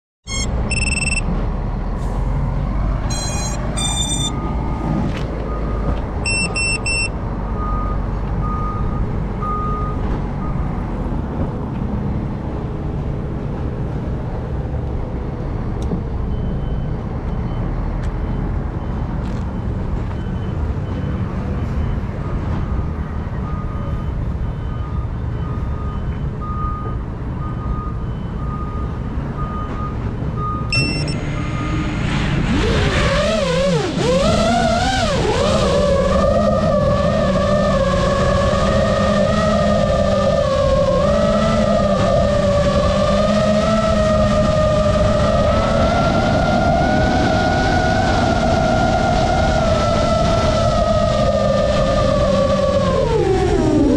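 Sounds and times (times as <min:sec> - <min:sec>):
thin electronic beep: 0:00.2 - 0:01.3, 0:03.1 - 0:04.6, 0:05.6 - 0:10.6, 0:30.4 - 0:31.9.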